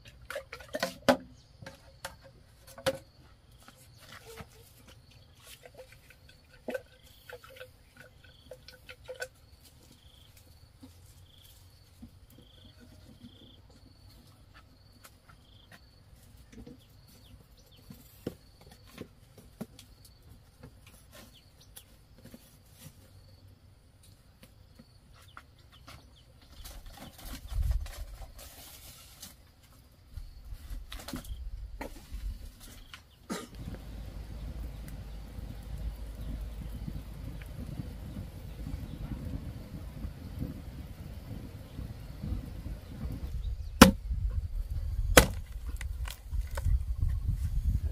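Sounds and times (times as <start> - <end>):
bird chirping: 32.8 - 39.4
firewood knocking on stones: 43.8 - 44.0, 45.1 - 46.8.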